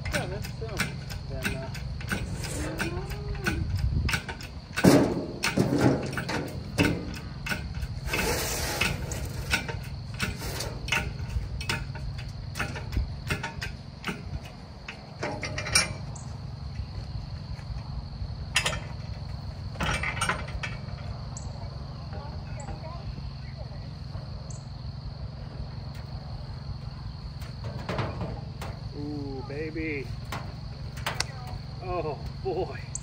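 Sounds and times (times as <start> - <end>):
metal clicks and clanks: 0.0 - 16.3, 18.5 - 21.5, 27.4 - 28.9, 30.2 - 31.6.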